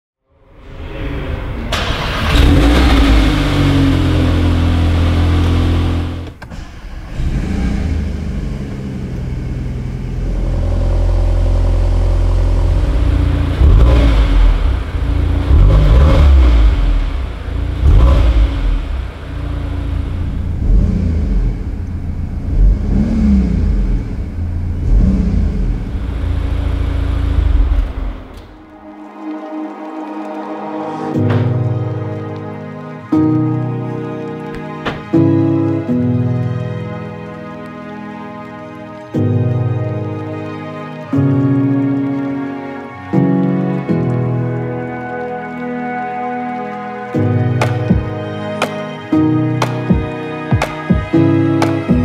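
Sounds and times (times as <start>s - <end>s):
car engine idling and revving: 1.6s - 28.7s.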